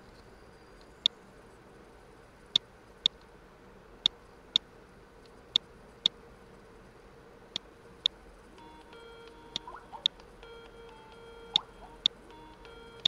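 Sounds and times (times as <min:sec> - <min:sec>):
faint beeping tune: 0:08.6 - 0:13.0.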